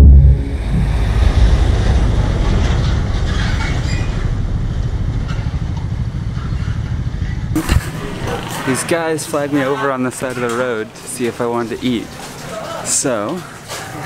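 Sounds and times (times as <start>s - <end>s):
motorbike engine: 0.0s - 9.8s
road noise: 0.0s - 14.0s.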